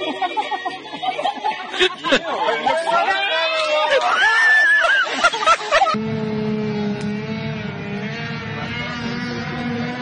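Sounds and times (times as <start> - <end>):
excited high voices: 0.0 - 6.0
motorboat engine running: 5.7 - 10.0.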